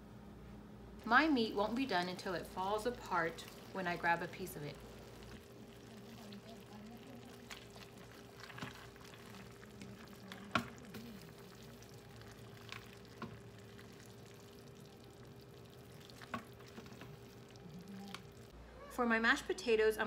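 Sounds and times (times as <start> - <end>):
steady low hum: 0.0 - 19.6.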